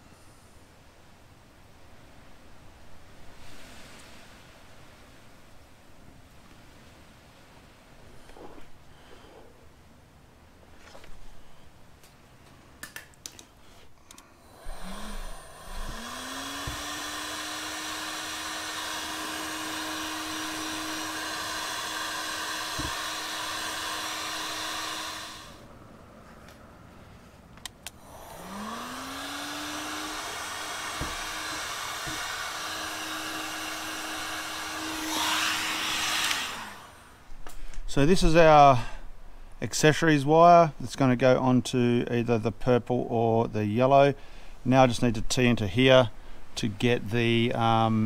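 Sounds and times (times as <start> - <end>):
fan hiss: 0.0 - 48.0
heat gun motor whine: 14.4 - 25.7, 27.9 - 38.5.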